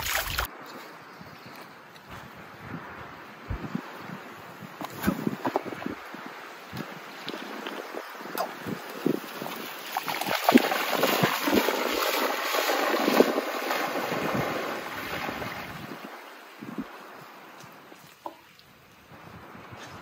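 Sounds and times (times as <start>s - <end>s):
dog splashing and paddling in water: 0.0s - 0.5s, 7.4s - 16.4s.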